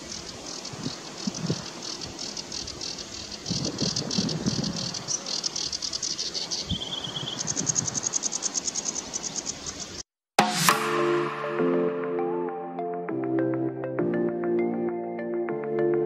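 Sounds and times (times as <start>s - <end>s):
sedge warbler singing: 0.0s - 10.0s
music: 10.4s - 16.0s.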